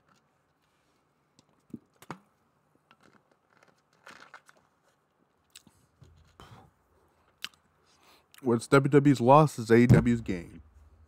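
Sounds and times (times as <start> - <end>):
crinkly rustle: 3.0 - 5.1.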